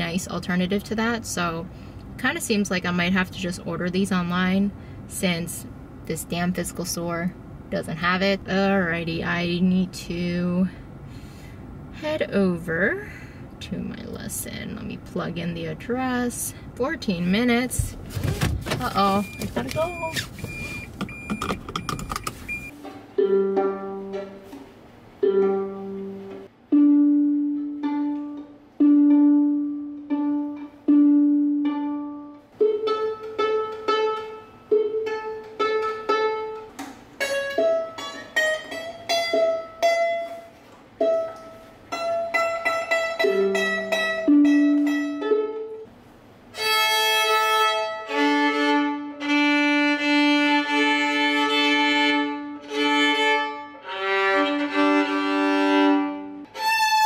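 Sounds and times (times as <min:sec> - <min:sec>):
car cabin noise: 0:17.2 - 0:22.7
violin playing slow notes: 0:46.5 - 0:57.0.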